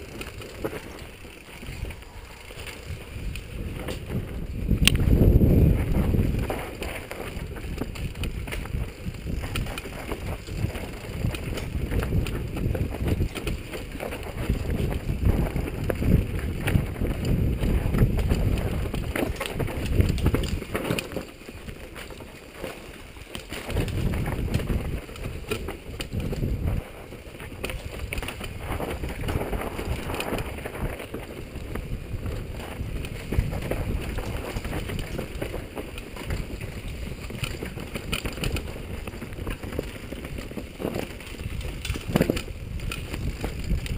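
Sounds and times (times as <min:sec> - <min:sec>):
wind rushing over camera: 0:00.0 - 0:22.2, 0:23.1 - 0:43.9
bike rattling over rough trail: 0:00.0 - 0:43.9.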